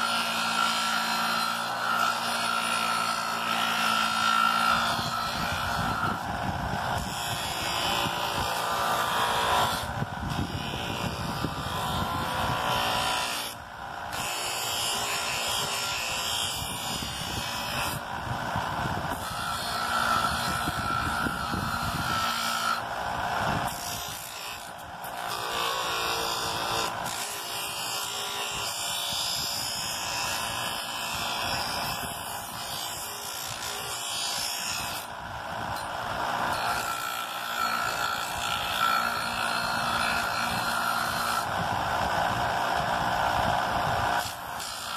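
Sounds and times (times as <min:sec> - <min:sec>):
sanding disc grinding wood: 0:00.0 - 0:44.9.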